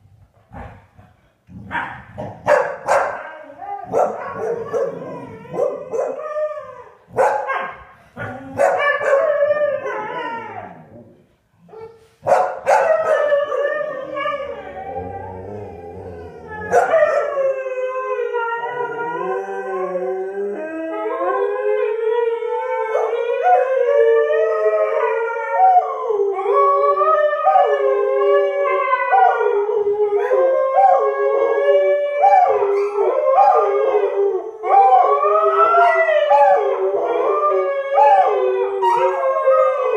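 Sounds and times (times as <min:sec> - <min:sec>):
dogs yipping: 0:02.5 - 0:03.3, 0:03.9 - 0:06.3, 0:08.6 - 0:09.4
dogs howling together: 0:02.8 - 0:11.8, 0:12.6 - 0:39.9.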